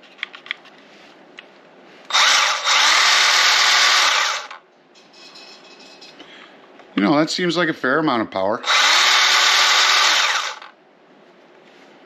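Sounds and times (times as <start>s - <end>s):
cordless pruning saw running: 2.1s - 4.6s, 8.6s - 10.7s.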